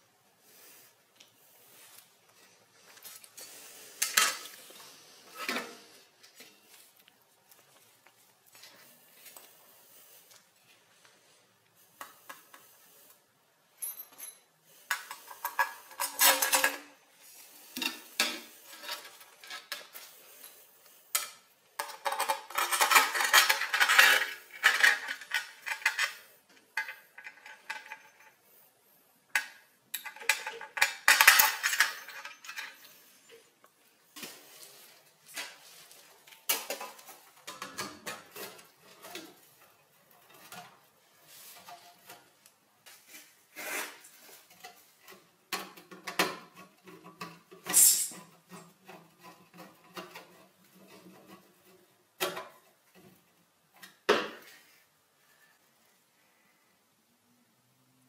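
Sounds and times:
metal plate and bolts clinking: 30.0 - 32.9.

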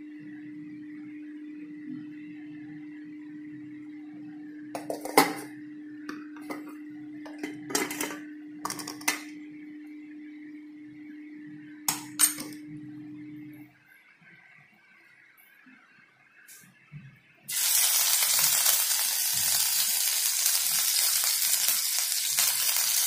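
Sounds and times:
low hum: 0.0 - 15.7
pots and plates clattering: 4.8 - 5.5, 7.3 - 9.2.

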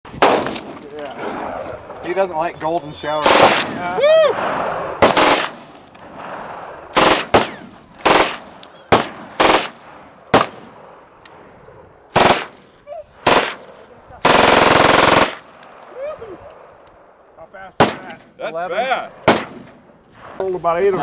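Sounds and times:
submachine gun firing bursts: 3.2 - 3.7, 5.0 - 5.6, 7.0 - 10.7, 12.1 - 12.6, 13.2 - 15.6.

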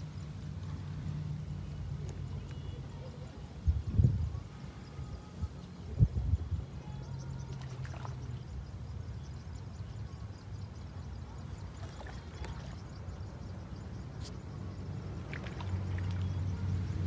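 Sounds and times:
low engine hum: 0.0 - 17.0.

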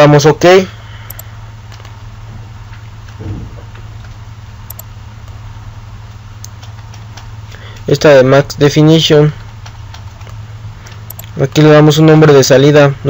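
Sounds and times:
low electrical hum with hiss: 0.0 - 13.0
faint low sound: 3.1 - 5.0.

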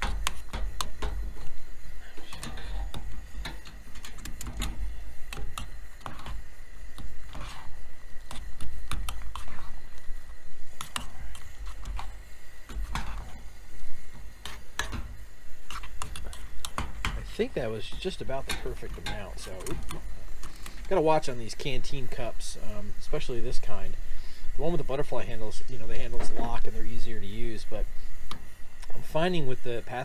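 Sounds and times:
utensil scraping metal cup: 7.0 - 9.9.

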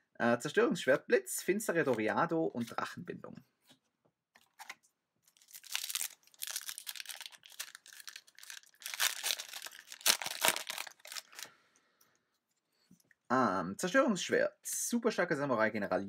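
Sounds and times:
foil wrapper crinkling and tearing: 5.3 - 11.5.

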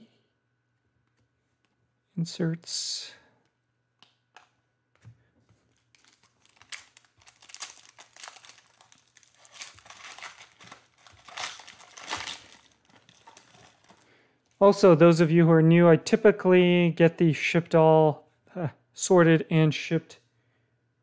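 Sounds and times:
foil wrapper crinkling: 5.6 - 14.2
foil tearing: 5.7 - 14.0.

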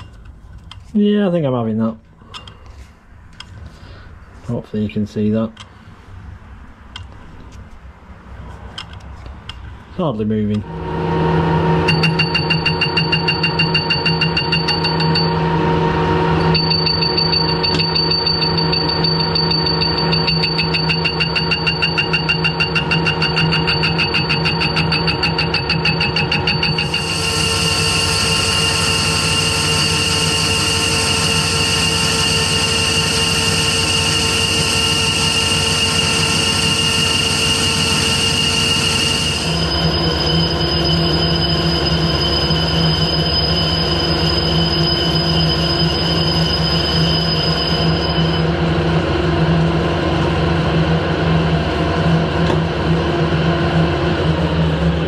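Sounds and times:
lathe gear whine with ticking: 10.7 - 51.4
lathe tool cutting hiss: 22.0 - 48.5.

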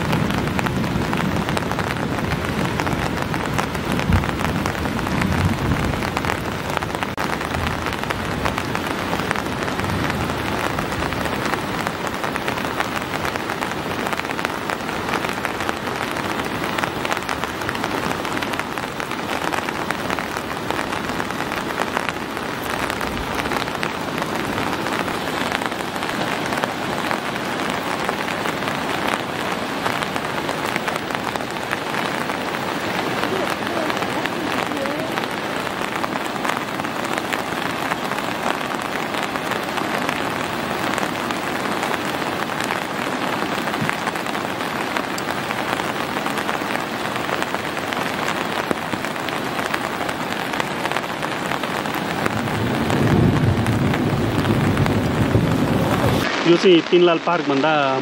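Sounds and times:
heavy rain falling: 0.0 - 58.0.

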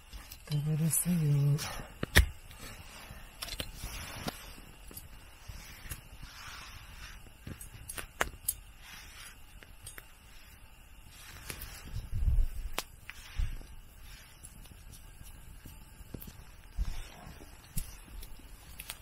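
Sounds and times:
campfire crackling and popping: 1.5 - 19.0.

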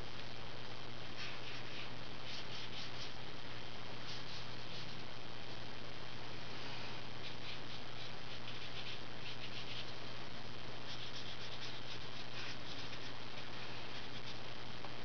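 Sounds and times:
marker scratching on paper: 1.2 - 3.2, 4.0 - 5.0, 7.2 - 9.9, 10.9 - 14.4.

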